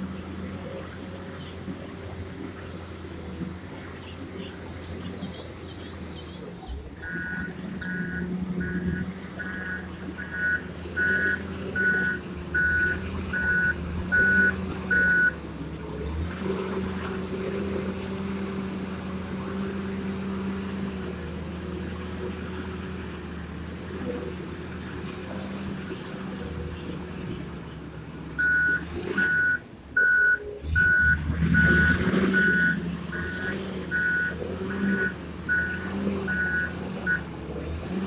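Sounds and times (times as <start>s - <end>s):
diesel engine running: 0.0s - 38.0s
reversing alarm beeping: 7.0s - 15.4s, 28.4s - 37.2s.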